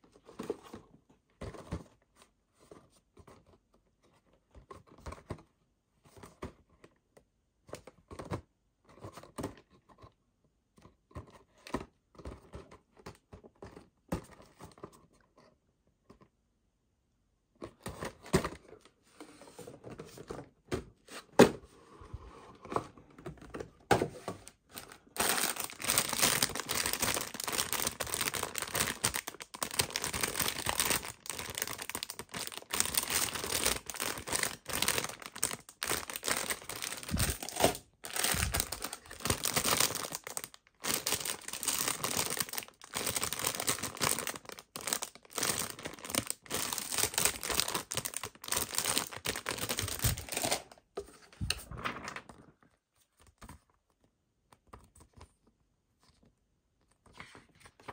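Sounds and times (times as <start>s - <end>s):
plastic bags crinkling: 24.8s - 50.8s.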